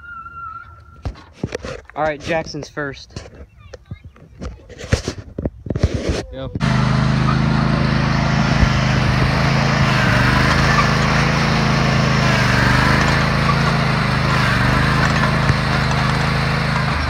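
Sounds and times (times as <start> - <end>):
riding mower engine running: 6.4 - 17.0.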